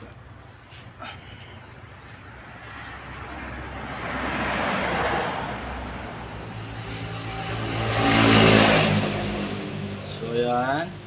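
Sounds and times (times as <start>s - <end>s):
motor vehicle passing: 2.1s - 11.0s
another engine approaching: 2.9s - 11.0s.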